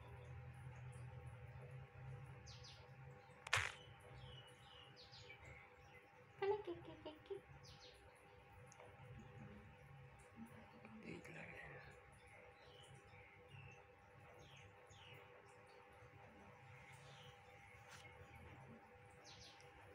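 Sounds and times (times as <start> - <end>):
low steady hum: 0.0 - 19.9
small birds chirping: 0.0 - 19.9
sharp clicks: 3.4 - 3.8.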